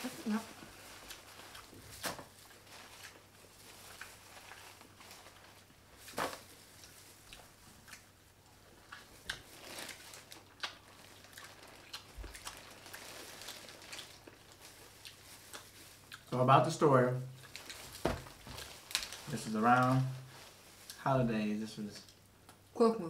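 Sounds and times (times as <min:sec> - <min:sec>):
plastic crinkling: 0:00.0 - 0:08.0, 0:09.0 - 0:16.4, 0:17.3 - 0:21.1
eating sounds: 0:06.8 - 0:16.4.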